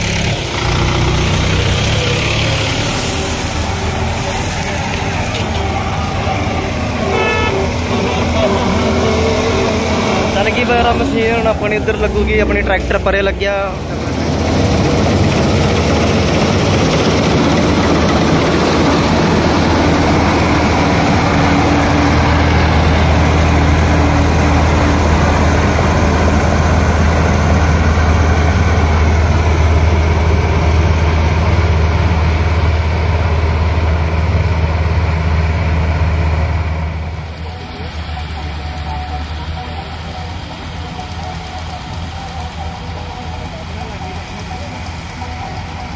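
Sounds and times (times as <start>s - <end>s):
threshing machinery whirring: 0.0s - 33.4s
diesel engine humming: 0.0s - 45.9s
steady whine: 0.0s - 45.9s.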